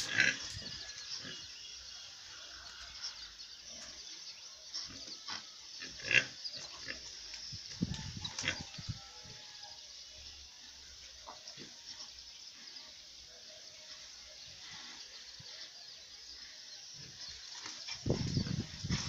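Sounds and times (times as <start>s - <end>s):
pigs grunting: 0.0s - 1.6s, 4.8s - 7.2s.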